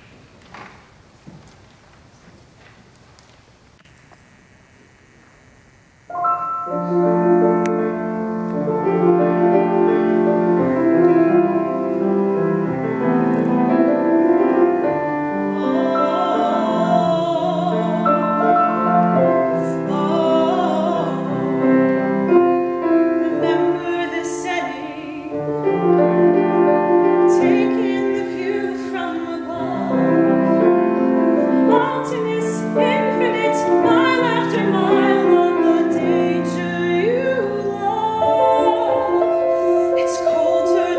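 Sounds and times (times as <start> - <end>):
grand piano accompaniment: 6.1 - 40.9
woman singing soprano: 15.0 - 40.9.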